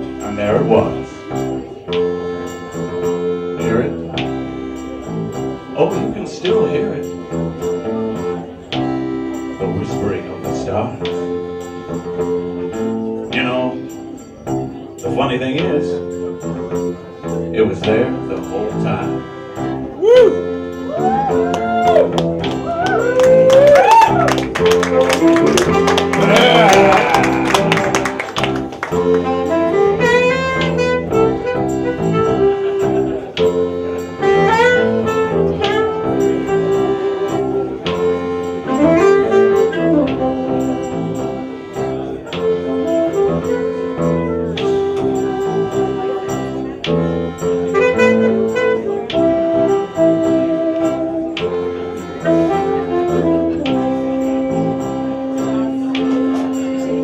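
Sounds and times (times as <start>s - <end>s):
accordion: 0.0s - 57.0s
saxophone melody: 0.0s - 57.0s
electric guitar: 19.9s - 57.0s.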